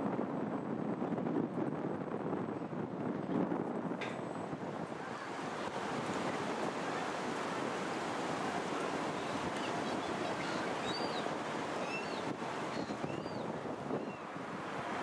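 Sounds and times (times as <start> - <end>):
wind blowing across microphone: 0.0 - 15.0
faint high chirps: 9.1 - 14.2.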